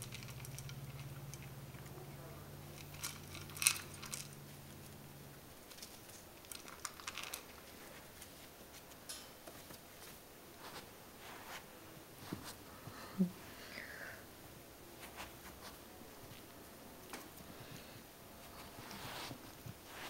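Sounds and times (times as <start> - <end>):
puppy crunching dry kibble: 0.0 - 9.0.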